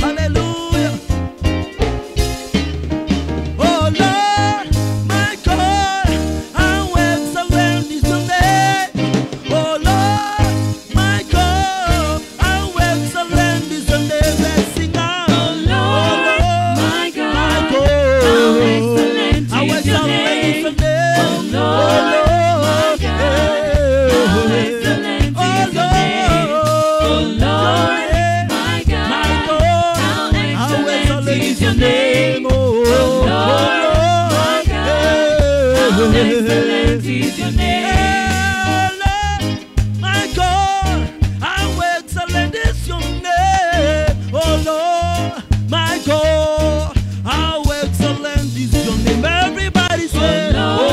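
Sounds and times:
lead singer: 0:00.0 - 0:01.1, 0:03.5 - 0:50.9
bass line: 0:00.0 - 0:50.9
drums: 0:00.0 - 0:50.9
electric guitar: 0:00.0 - 0:50.9
keyboard: 0:00.0 - 0:50.9
backing singers: 0:14.4 - 0:39.1, 0:49.9 - 0:50.9.

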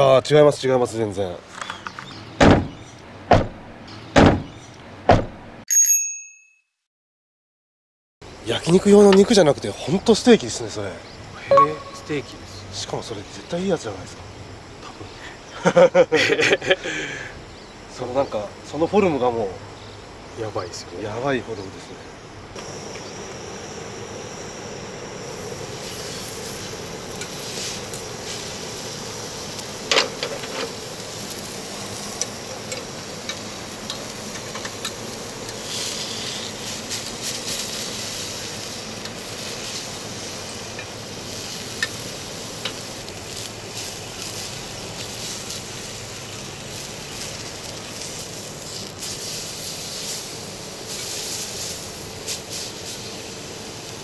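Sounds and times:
steak sizzling on griddle: 0:22.5 - 0:54.0.

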